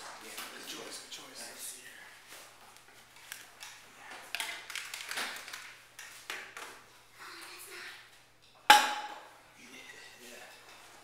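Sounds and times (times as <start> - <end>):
kitchen utensils tapping and knocking: 8.7 - 9.2.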